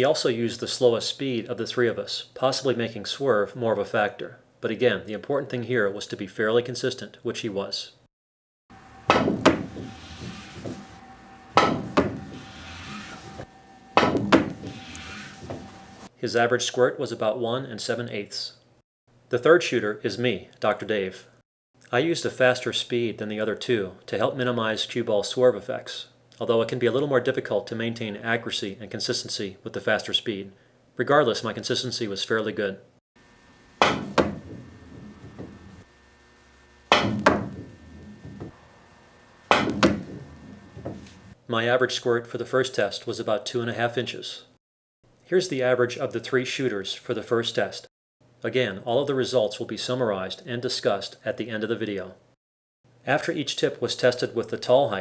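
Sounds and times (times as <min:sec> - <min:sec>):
cue striking ball: 0:09.0 - 0:11.0, 0:11.6 - 0:13.2, 0:14.0 - 0:15.8, 0:33.8 - 0:35.9, 0:36.9 - 0:38.5, 0:39.5 - 0:41.2
ball hitting cushion: 0:09.1 - 0:10.9, 0:11.6 - 0:12.4, 0:14.0 - 0:14.7, 0:33.8 - 0:35.8, 0:36.9 - 0:38.5, 0:39.5 - 0:41.2.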